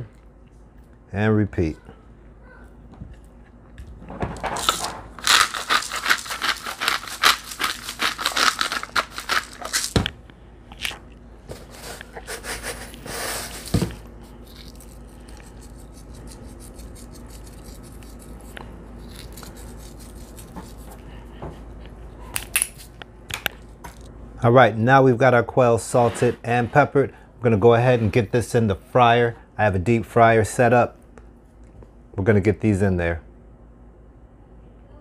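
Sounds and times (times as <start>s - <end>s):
pepper grinder ticking: 4.6s - 10.0s
salt grinder crunching: 4.6s - 10.1s, 11.8s - 21.0s
taps and scrapes: 15.4s - 21.6s.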